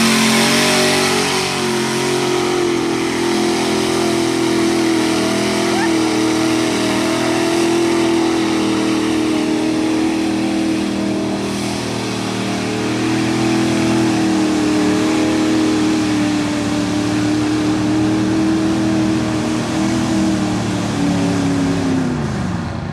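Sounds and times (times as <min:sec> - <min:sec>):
truck engine revving hard: 0:00.0 - 0:22.9
tyres churning through mud: 0:00.0 - 0:22.9.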